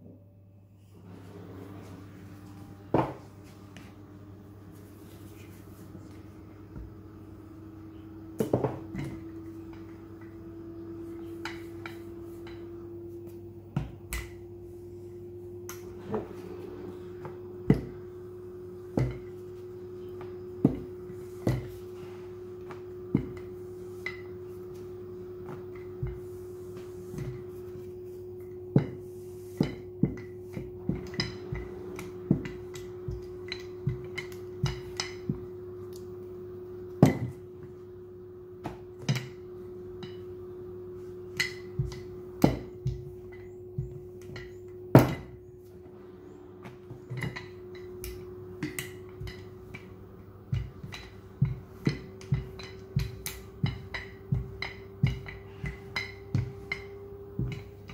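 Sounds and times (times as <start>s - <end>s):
steady hum: 0.0s - 57.9s
rolling pin rolling dough: 0.9s - 57.9s
rolling pin knocking on counter: 50.5s - 57.9s.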